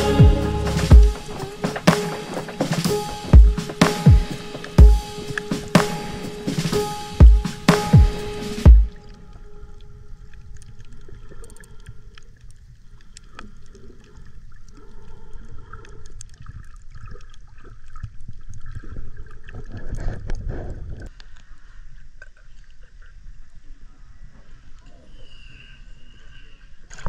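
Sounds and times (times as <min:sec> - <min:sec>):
underwater clicks and crackles: 0:09.0 - 0:23.7.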